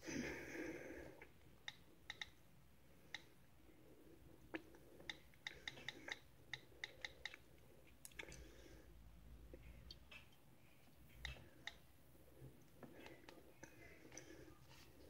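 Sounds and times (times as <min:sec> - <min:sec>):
touchscreen taps and clicks: 0:01.6 - 0:02.4, 0:05.0 - 0:08.2.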